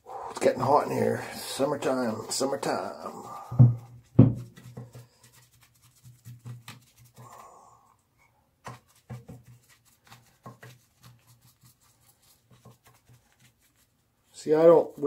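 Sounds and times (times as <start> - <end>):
foam brush dabbing on wood: 0.5 - 7.3, 8.6 - 15.0.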